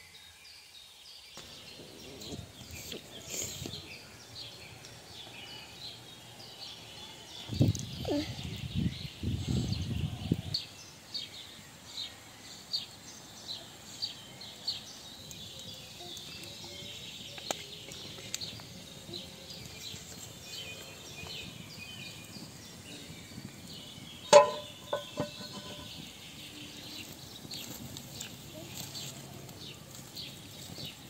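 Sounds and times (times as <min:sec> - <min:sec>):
birds chirping: 0:01.2 - 0:31.0
metal pan clanking: 0:24.3 - 0:26.0.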